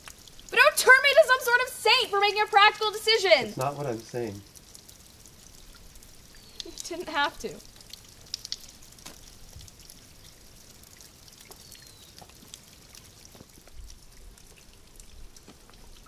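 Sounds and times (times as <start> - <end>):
water trickling and dripping: 0.0 - 16.0.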